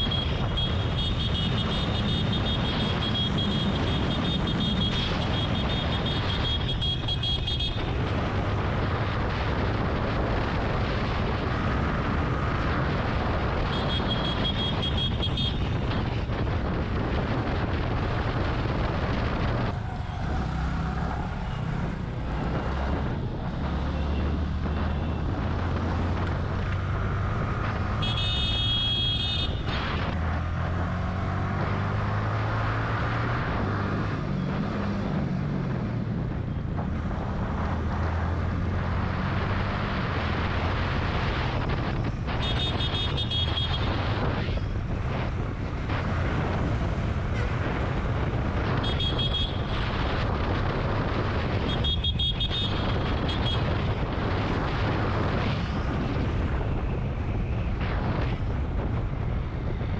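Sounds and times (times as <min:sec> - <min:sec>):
motorcycle engine: 0:00.0 - 0:09.6
vehicle horn honking: 0:28.0 - 0:29.6.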